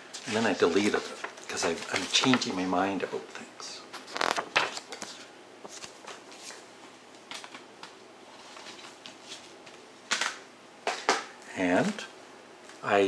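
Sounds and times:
paper packaging rustling: 0.3s - 2.5s, 3.9s - 6.6s, 8.3s - 10.4s.

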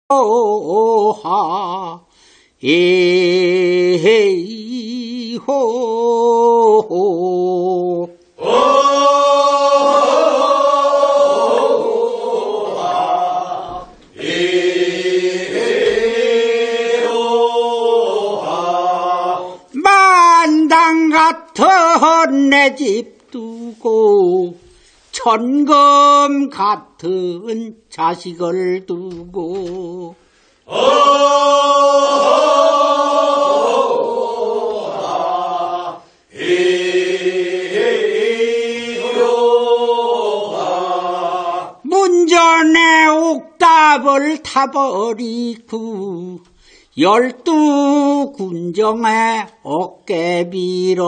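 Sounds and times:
group of voices singing: 0.1s - 51.0s
group of voices chanting: 8.4s - 19.8s, 30.7s - 41.9s.

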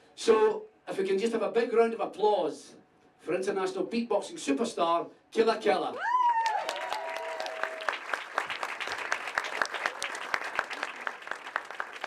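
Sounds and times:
audience clapping: 6.4s - 12.0s.

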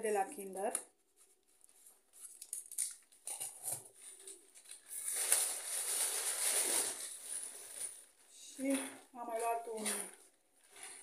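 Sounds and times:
plastic carrier bag rustling: 3.3s - 11.0s.

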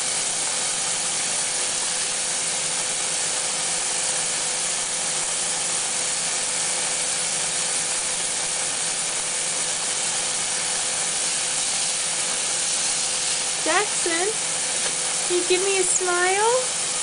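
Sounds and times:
faucet water running into sink: 8.0s - 17.0s.

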